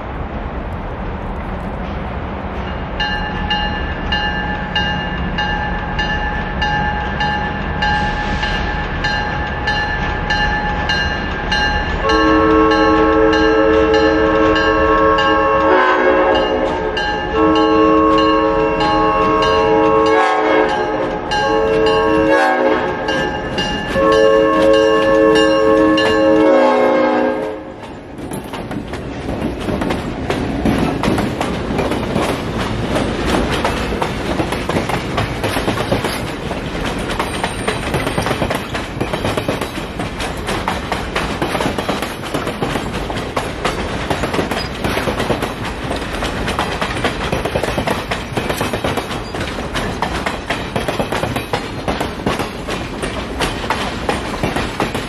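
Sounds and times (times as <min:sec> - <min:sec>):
train rumbling past: 0:00.0 - 0:55.0
wheels clattering on rails: 0:01.3 - 0:26.7, 0:27.4 - 0:55.0
locomotive bell ringing: 0:02.6 - 0:26.7, 0:37.2 - 0:38.4
multi-chime air horn blasts: 0:12.0 - 0:27.7.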